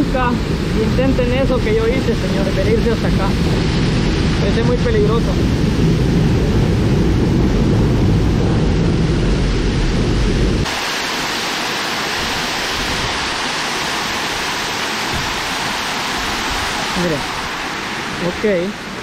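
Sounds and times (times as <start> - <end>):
water rushing at a dam: 0.0 - 5.8, 10.6 - 19.0
heavy low rumble: 0.0 - 10.7.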